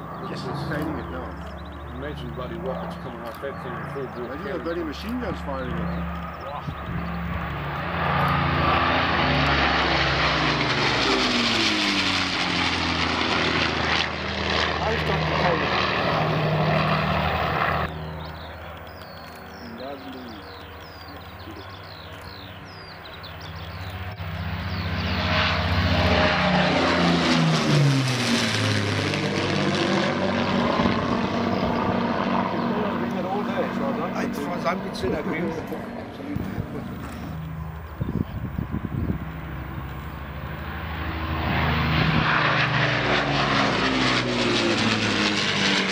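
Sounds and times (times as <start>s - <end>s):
small birds chirping: 0.0s - 9.0s, 13.9s - 26.1s, 30.3s - 40.7s
propeller plane flying overhead: 0.0s - 45.9s.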